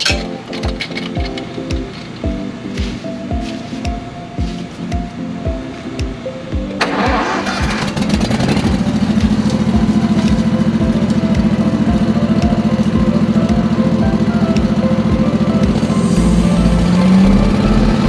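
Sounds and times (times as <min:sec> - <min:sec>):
music with a steady beat: 0:00.0 - 0:18.0
debris vacuum engine running: 0:06.8 - 0:14.4.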